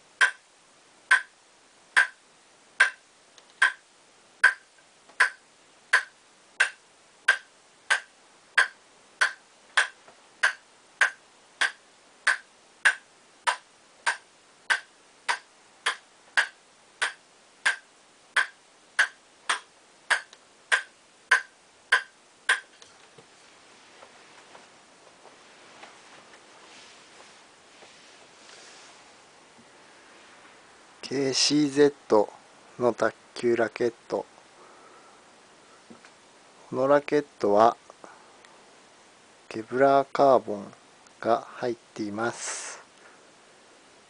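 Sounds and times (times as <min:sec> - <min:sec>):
table tennis ball bouncing on bat: 0:00.2 - 0:00.4, 0:01.1 - 0:01.3, 0:02.0 - 0:02.2, 0:02.8 - 0:03.0, 0:03.6 - 0:03.8, 0:04.4 - 0:22.7.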